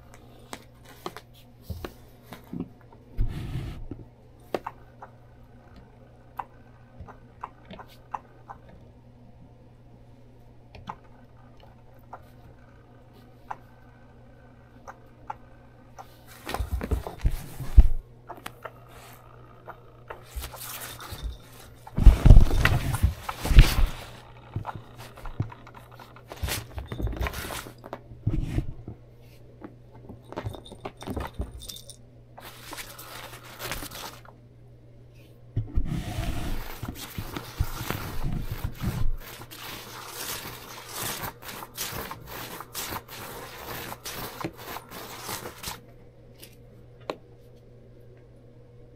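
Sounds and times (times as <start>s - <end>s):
scrabbling and scraping on floor: 16.0s - 29.4s, 30.0s - 34.3s, 35.6s - 45.8s
rustling cloth: 20.2s - 28.8s, 35.8s - 45.8s
metal collar tag jingling: 30.3s - 32.0s.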